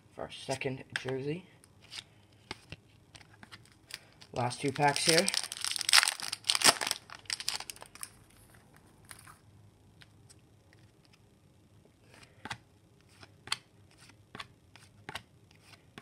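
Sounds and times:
wrapper rustling: 3.6 - 9.2.

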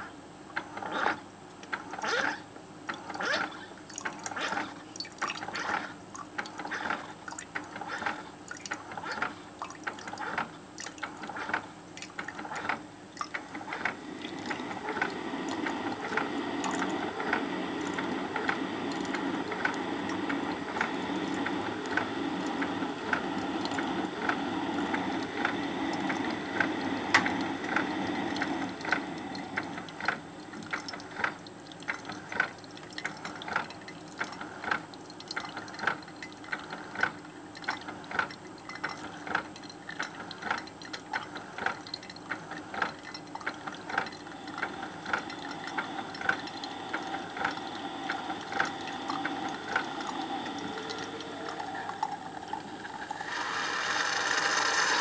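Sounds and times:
coffee brewer gurgling: 0.0 - 55.0
coffee dripping into cup: 13.2 - 53.2.

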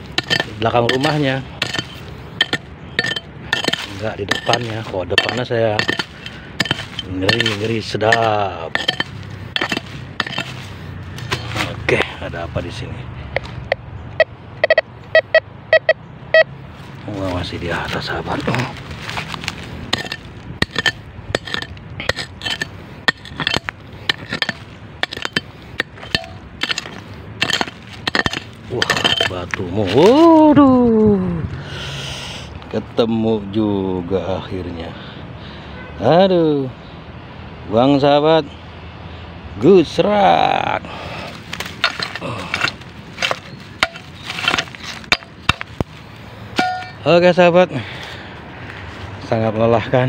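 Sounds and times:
sharp knocks: 0.0 - 10.6, 19.9 - 29.6
digging tool striking stony soil: 0.0 - 12.1, 17.3 - 30.4, 41.2 - 47.1.

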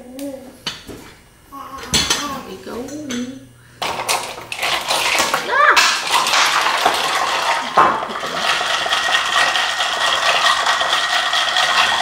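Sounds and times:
ice cubes clinking in glass: 3.8 - 12.0.

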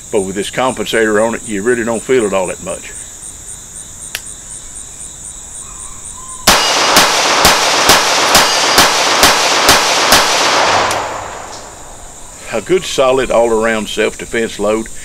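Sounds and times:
pistol shots in rapid succession: 6.4 - 11.9.

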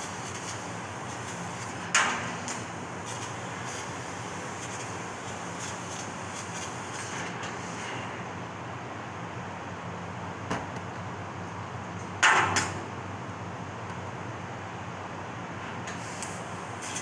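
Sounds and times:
laser cutting machine running: 0.0 - 8.2.

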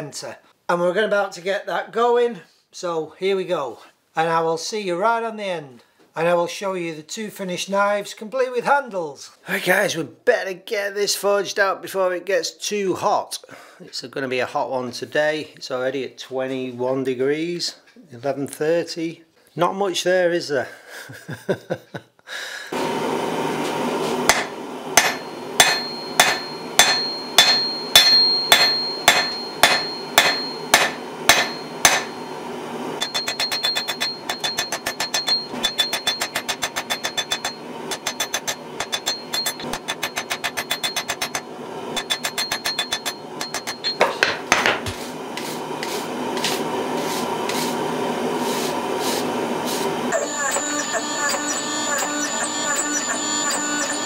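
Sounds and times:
hammer striking ringing anvil: 24.3 - 32.4, 33.0 - 44.6, 50.2 - 54.0.

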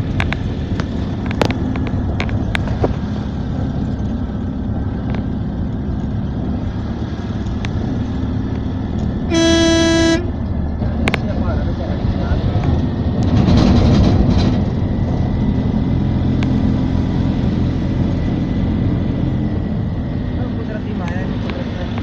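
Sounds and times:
vehicle engine and road noise: 0.0 - 22.0
car horn blast: 9.3 - 10.4.

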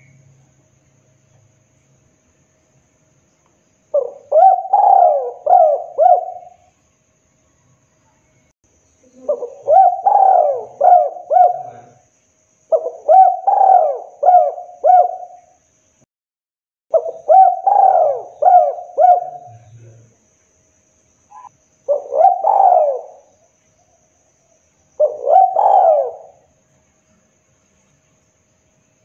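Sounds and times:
dove cooing: 3.9 - 6.7, 9.0 - 12.0, 12.7 - 15.5, 16.9 - 20.0, 21.3 - 23.4, 25.0 - 26.5.

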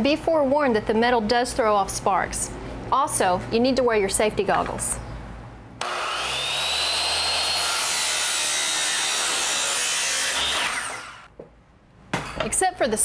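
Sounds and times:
circular saw cutting metal: 5.8 - 11.3.

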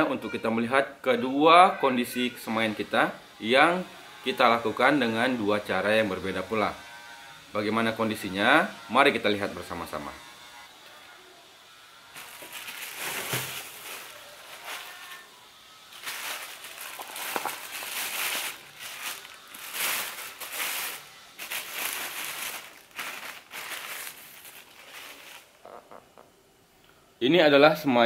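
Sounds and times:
plastic bag crinkling: 12.1 - 15.3, 15.9 - 25.6.

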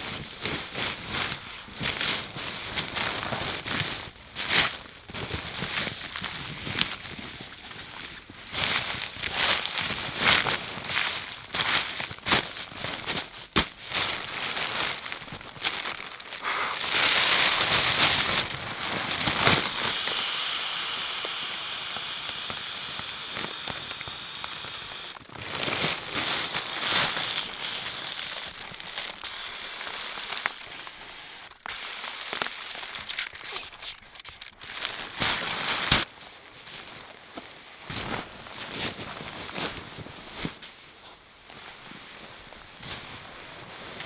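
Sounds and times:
plastic sheet crinkling and rustling: 0.0 - 20.2, 22.0 - 44.0.

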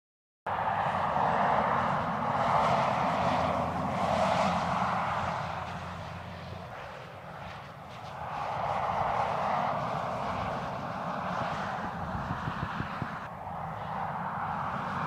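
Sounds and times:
car engine drone: 0.5 - 15.0
tyre and wind rush: 0.7 - 15.0.

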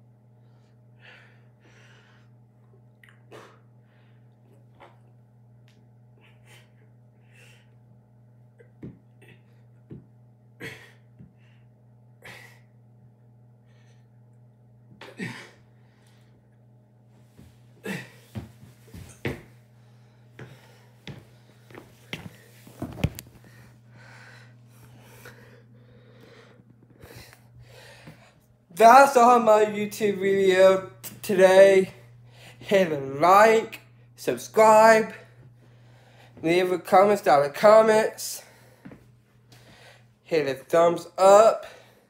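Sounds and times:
low hum: 0.0 - 40.3
man breathing hard: 0.4 - 2.4, 17.8 - 22.5, 23.3 - 28.5, 32.1 - 32.7, 35.2 - 36.4, 38.4 - 40.2.

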